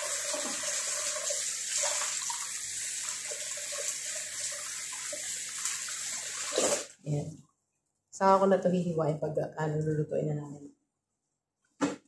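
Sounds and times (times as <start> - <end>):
faucet running and splashing: 0.0 - 6.9.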